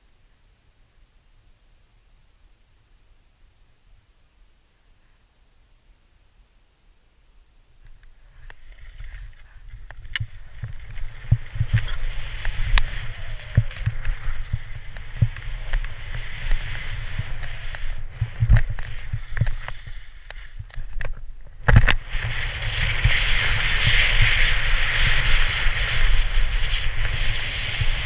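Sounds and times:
edges scraping on snow: 8.3s - 21.0s, 21.9s - 28.0s.

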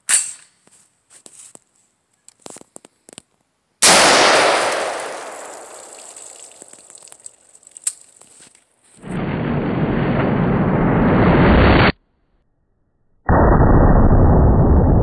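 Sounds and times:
gunshot with echo: 3.8s - 6.2s.

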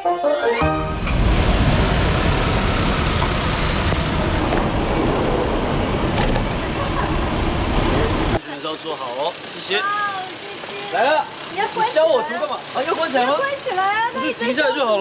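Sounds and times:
musical phrase: 0.0s - 4.3s
rushing noise with deep rumble: 0.9s - 8.4s.

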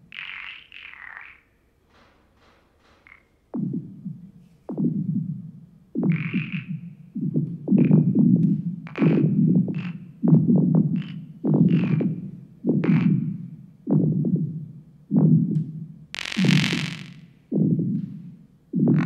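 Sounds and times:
low grainy electronic pulses: 2.8s - 19.0s
clicks and high glints: 16.2s - 17.7s.

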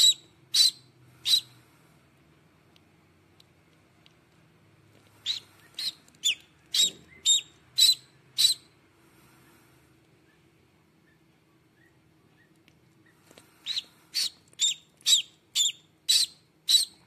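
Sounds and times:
duckling peeping: 0.0s - 1.6s, 5.2s - 8.8s, 11.0s - 17.0s.

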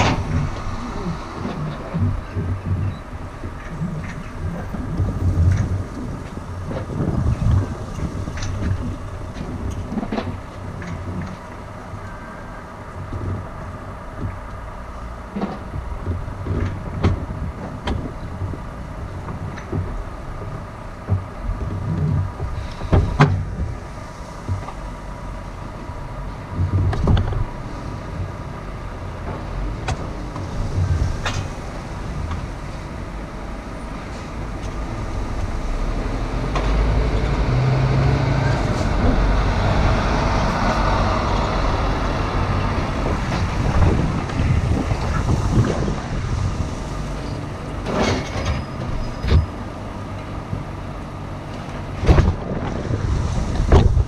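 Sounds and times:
knocks and rattles: 0.0s - 12.1s, 12.9s - 25.0s, 26.5s - 28.4s, 51.6s - 54.0s
road noise: 0.0s - 54.0s.

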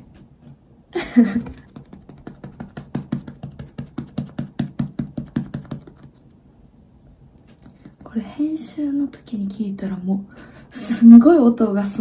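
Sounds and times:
makeup puff tapping face: 1.4s - 6.2s, 7.5s - 8.1s.

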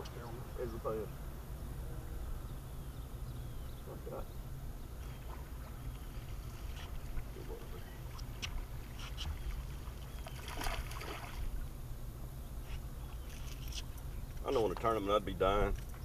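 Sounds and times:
short water splash: 9.2s - 11.5s.

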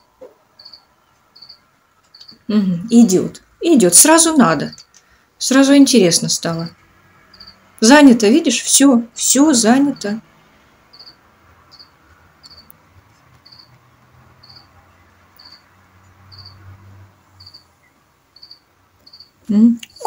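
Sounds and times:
cricket chirping: 0.0s - 2.5s, 7.2s - 7.7s, 10.9s - 13.8s, 14.4s - 20.0s.

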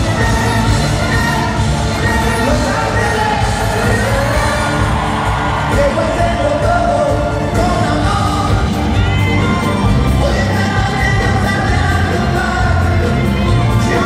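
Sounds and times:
live band with singing: 0.0s - 14.0s.

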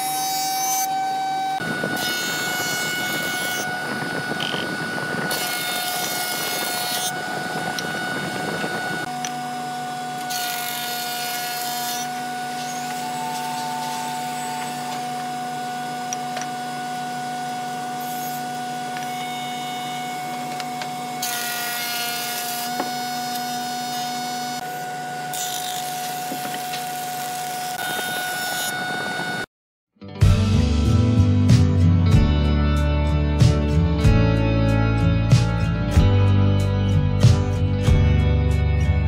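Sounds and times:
planer cutting wooden boards: 0.0s - 29.4s
thickness planer motor humming: 0.0s - 29.4s.

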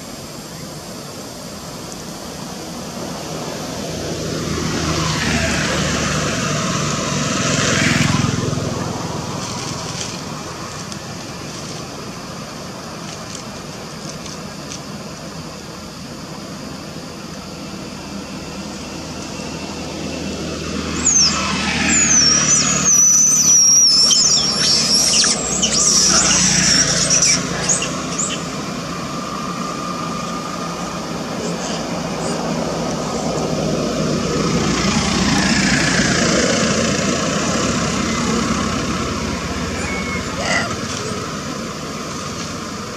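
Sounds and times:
steady background hum: 0.0s - 42.9s
baby monkey squealing: 21.0s - 28.4s, 39.8s - 40.8s.

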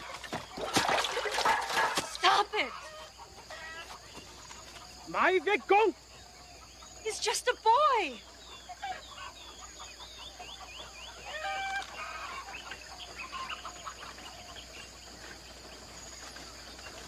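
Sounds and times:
birds chirping: 0.0s - 17.0s
woman shouting: 2.2s - 2.7s, 7.1s - 8.2s.

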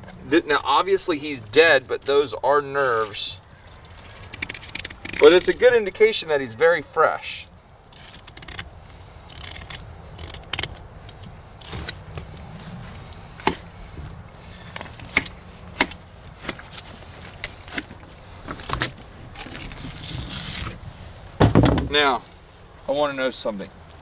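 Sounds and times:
knife scraping bones: 4.3s - 5.7s, 7.9s - 12.0s.

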